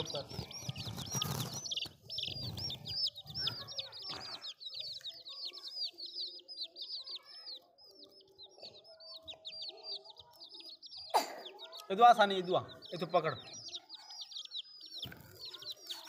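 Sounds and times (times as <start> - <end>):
baby chicks peeping: 0.0 - 16.0.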